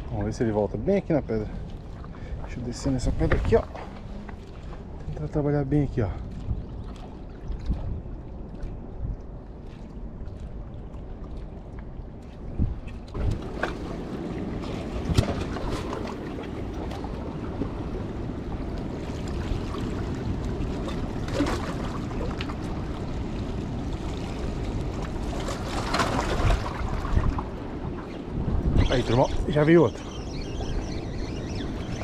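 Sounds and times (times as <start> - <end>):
wind buffeting microphone: 0.0 - 32.0
sea water washing on rocks: 13.0 - 27.9.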